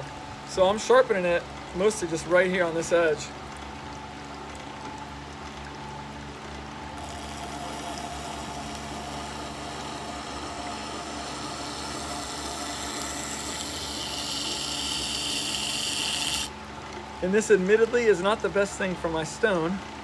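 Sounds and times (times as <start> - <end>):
grinder motor hum: 6.8 - 16.6
blade grinding on wet stone: 7.0 - 16.5.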